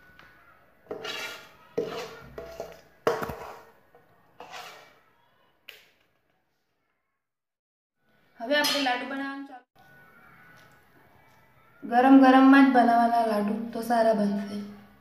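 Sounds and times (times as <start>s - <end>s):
metal spatula scraping metal: 0.9s - 3.8s, 4.4s - 5.1s.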